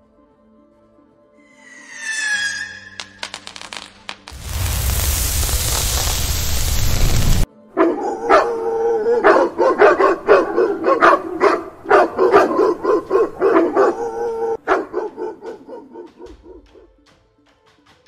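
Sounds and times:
dogs barking: 7.8s - 16.9s.

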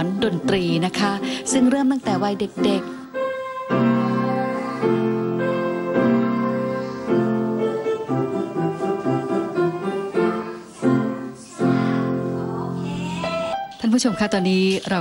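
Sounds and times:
slow piano tune: 0.0s - 15.0s.

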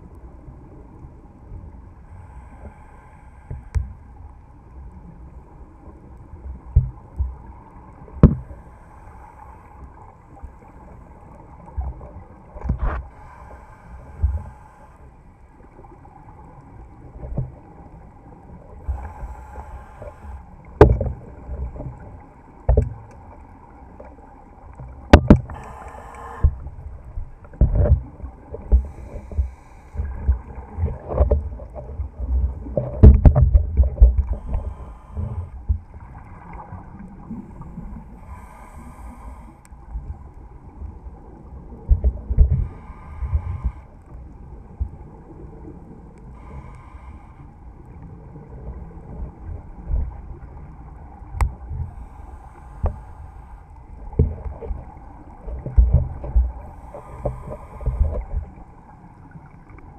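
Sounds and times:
regulator breathing hiss: 13.1s - 15.1s, 18.8s - 20.5s, 25.5s - 26.7s, 28.8s - 30.1s, 34.3s - 35.6s, 37.5s - 39.7s, 42.6s - 44.0s, 46.4s - 47.6s, 51.8s - 53.8s, 56.6s - 58.2s.

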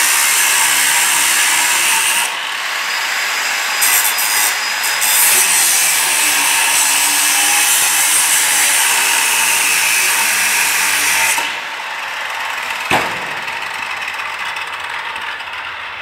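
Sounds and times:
angle grinder grinding steel: 0.0s - 16.0s
sharp knock: 12.9s - 14.2s.

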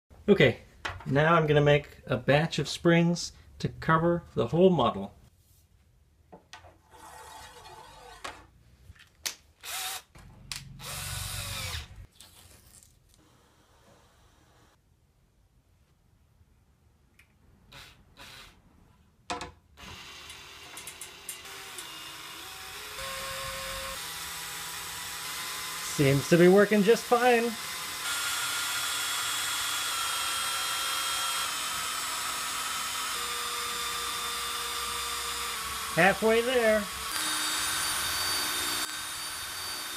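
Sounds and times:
cordless drill running: 9.6s - 10.1s, 10.8s - 12.1s, 19.8s - 39.9s.

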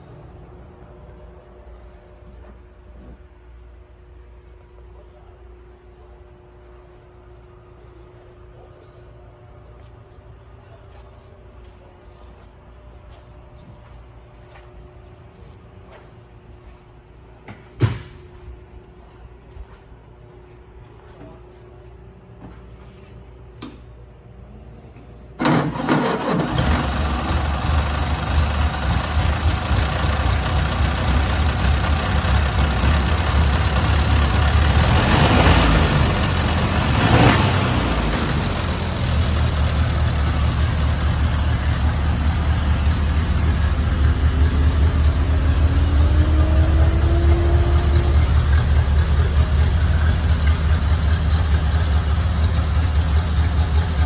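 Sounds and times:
car engine starting and idling: 25.4s - 54.0s
engine revving: 25.9s - 51.4s.

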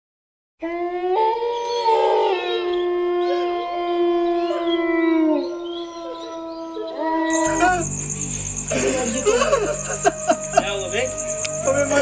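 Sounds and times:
horn-like drone: 7.3s - 12.0s.

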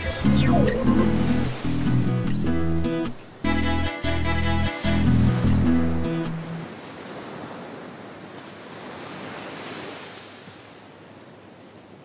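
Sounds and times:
ocean surf breaking on beach: 5.8s - 12.0s.

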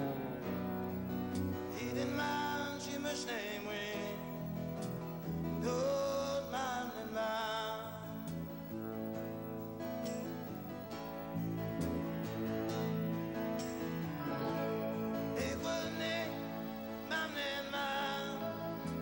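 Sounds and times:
guitar band playing: 0.0s - 19.0s
person singing: 1.6s - 4.5s, 5.5s - 8.3s, 14.2s - 19.0s.

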